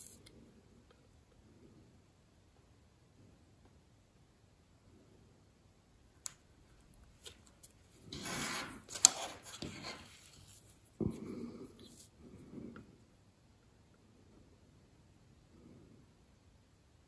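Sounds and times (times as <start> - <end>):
paper rubbing and sliding: 7.9 - 10.8.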